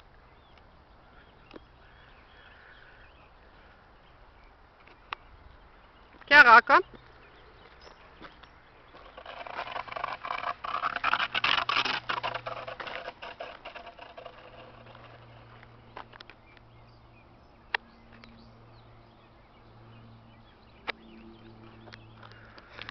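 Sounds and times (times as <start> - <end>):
gravel crunching underfoot: 4.8 - 17.0, 20.9 - 22.9
stick dragged on gravel: 8.9 - 16.0.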